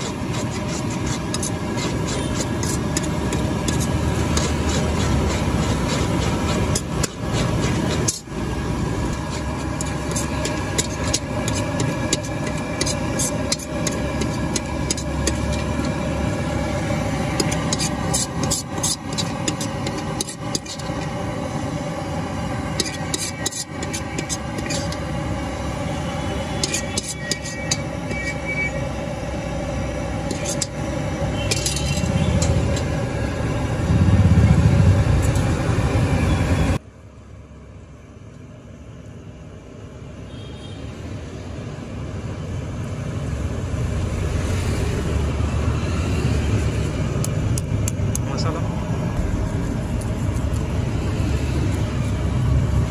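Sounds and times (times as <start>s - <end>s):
ladle scraping a metal pan: 0.0s - 8.3s, 9.1s - 21.2s, 22.7s - 25.2s, 26.4s - 28.8s, 30.2s - 33.0s
street traffic: 0.0s - 52.9s
low rumble: 31.1s - 36.8s, 49.0s - 52.9s.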